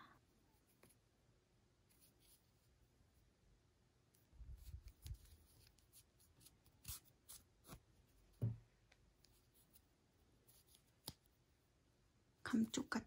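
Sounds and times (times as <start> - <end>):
soft rubbing of yarn: 1.8 - 3.3, 4.1 - 8.5, 9.2 - 11.4.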